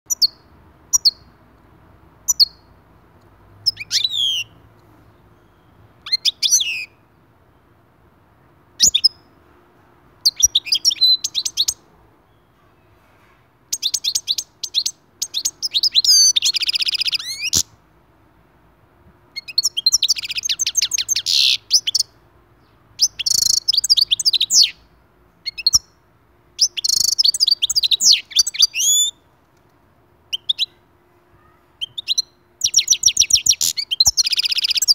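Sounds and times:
finch singing: 0.1 - 1.4, 2.2 - 2.7, 3.6 - 7.6, 8.8 - 9.4, 10.2 - 17.7, 19.4 - 26.0, 26.6 - 29.2, 30.3 - 30.8, 31.4 - 34.9.

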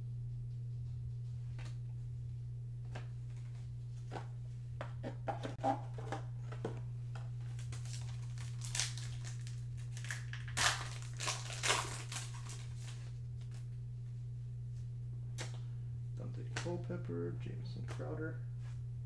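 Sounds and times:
low electrical hum: 0.0 - 19.0
foil wrapper tearing and crinkling: 7.4 - 13.5.

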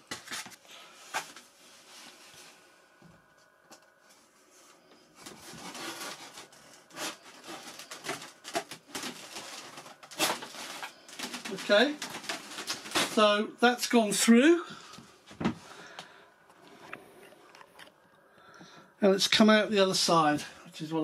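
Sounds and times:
scratchy rubbing of foam parts: 5.2 - 13.2.

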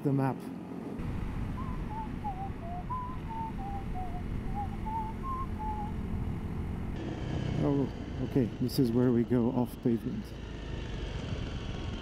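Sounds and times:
wind noise: 1.0 - 8.4
motorcycle engine running: 1.0 - 12.0
person whistling a tune: 1.6 - 5.9.

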